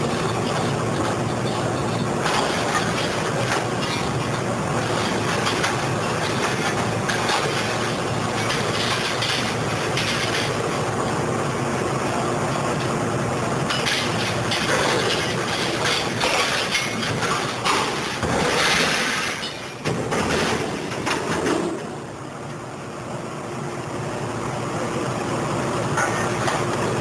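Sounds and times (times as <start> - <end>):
scrap metal clanking and scraping: 0.0 - 10.6, 13.7 - 22.0
excavator running: 0.0 - 27.0.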